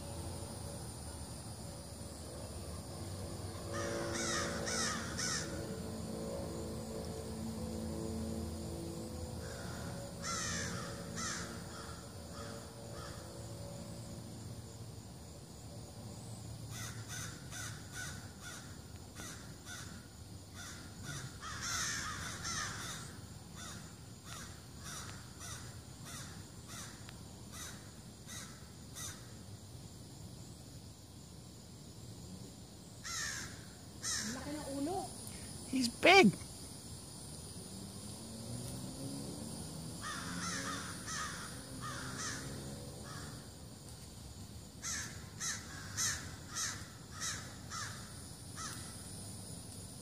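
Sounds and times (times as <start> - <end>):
birds harsh alarm calls: 3.7 - 5.5, 9.4 - 13.1, 20.6 - 23.8, 40.0 - 42.4.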